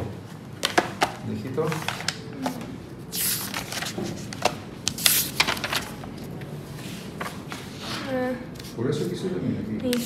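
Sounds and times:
paper rustling: 0.6s - 2.6s, 3.2s - 8.8s
page-turn swishes: 3.2s - 6.0s.

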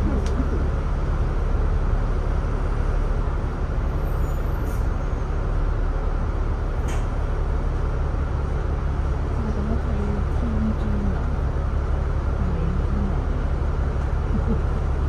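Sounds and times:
bus diesel engine rumbling: 0.0s - 15.0s.

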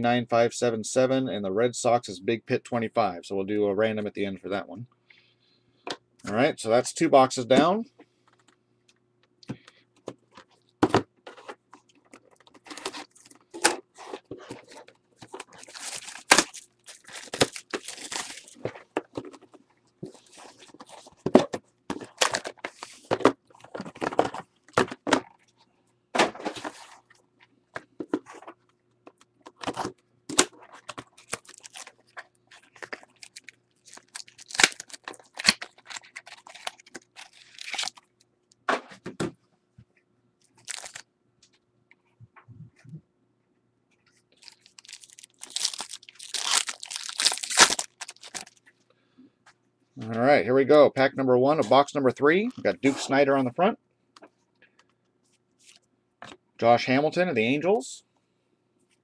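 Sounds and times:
plastic wrap crinkling and tearing: 14.6s - 18.7s, 30.6s - 38.0s, 40.6s - 41.0s, 44.4s - 48.6s.

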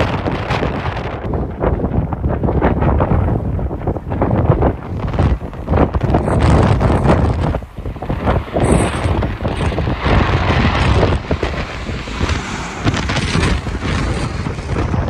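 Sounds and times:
wind buffeting microphone: 0.0s - 15.0s
jet plane passing overhead: 3.0s - 15.0s.

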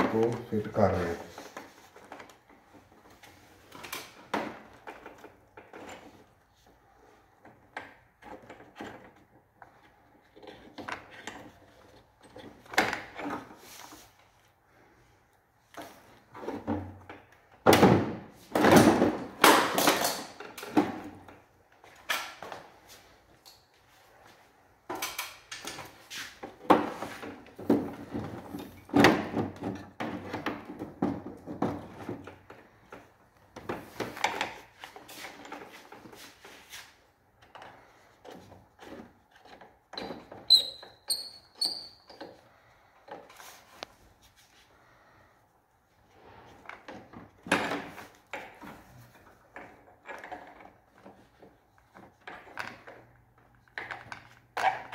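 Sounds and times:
knocks rattles and scrapes: 0.0s - 45.0s
short high squeaks: 40.5s - 42.1s.

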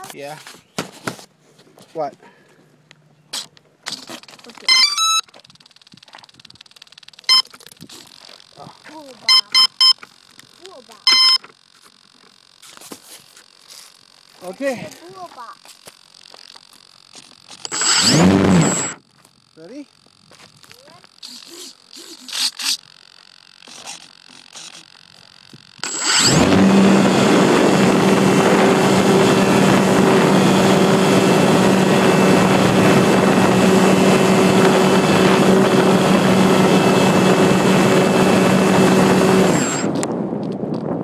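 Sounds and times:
model plane motor droning: 10.0s - 40.1s
wind noise: 25.5s - 41.0s.

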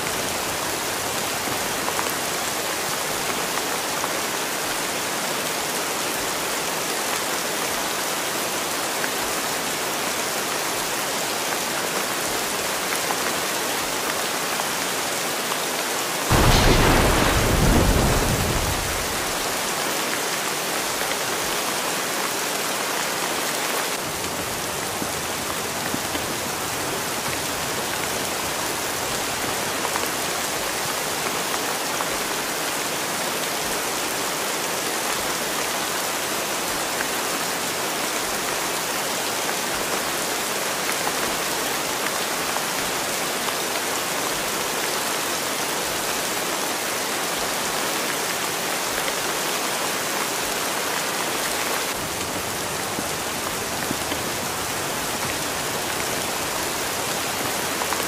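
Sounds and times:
steady rain: 0.0s - 58.0s
thunder rolling: 16.3s - 19.6s.

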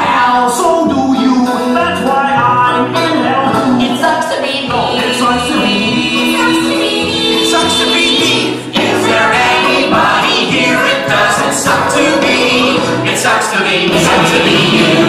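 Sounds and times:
chorus singing with accompaniment: 1.1s - 15.0s.

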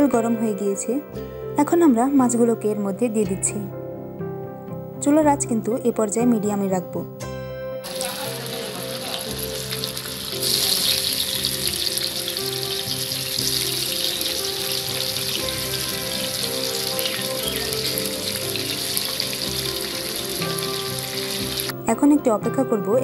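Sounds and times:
fish sizzling in hot oil: 7.8s - 21.7s.

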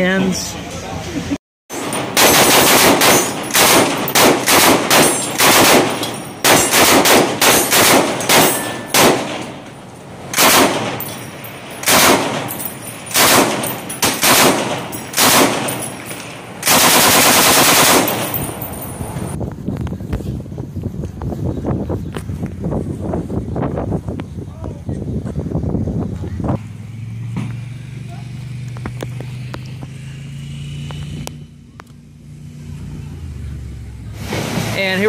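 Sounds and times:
machine gun bursts: 1.8s - 9.5s, 10.4s - 11.1s, 11.8s - 16.0s, 16.6s - 18.6s.

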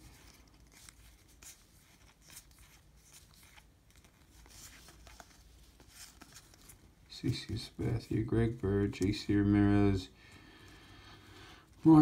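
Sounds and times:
cards flicking and rustling: 0.0s - 7.0s.

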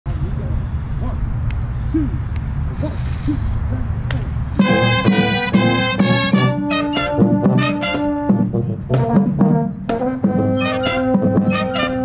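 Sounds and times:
marching band brass: 4.6s - 12.0s.

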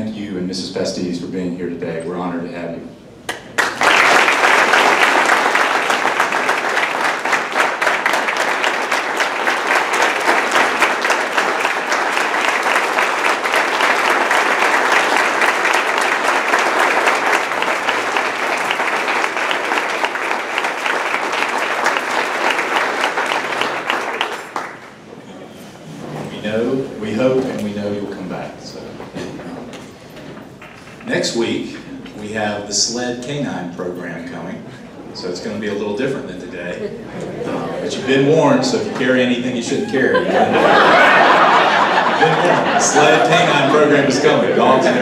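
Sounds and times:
audience applauding: 3.3s - 25.1s, 40.5s - 45.0s.

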